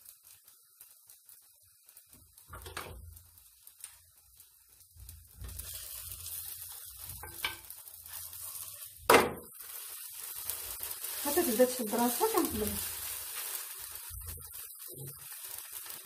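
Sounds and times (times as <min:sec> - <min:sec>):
flatbread sizzling in a pan: 0:00.0 - 0:16.0.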